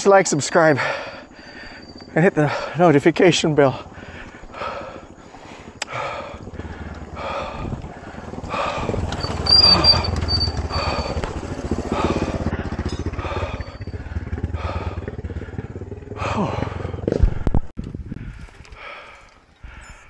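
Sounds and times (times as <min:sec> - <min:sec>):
heavy panting breaths: 0:00.7 - 0:03.0, 0:03.6 - 0:17.5, 0:18.2 - 0:20.0
motorcycle engine passing: 0:01.4 - 0:17.4.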